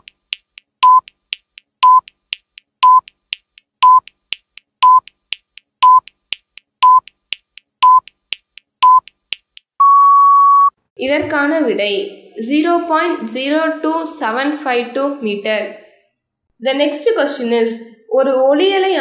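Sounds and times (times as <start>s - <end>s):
faint ticking clicks: 0.0s - 9.8s
short electronic beeps: 1.8s - 2.1s, 2.8s - 3.1s, 3.8s - 4.1s, 4.8s - 5.1s, 5.8s - 6.1s, 6.8s - 7.1s, 7.8s - 8.1s.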